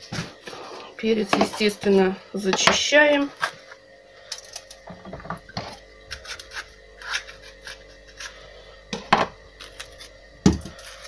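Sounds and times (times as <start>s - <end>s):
scraping and rubbing: 5.6s - 8.6s.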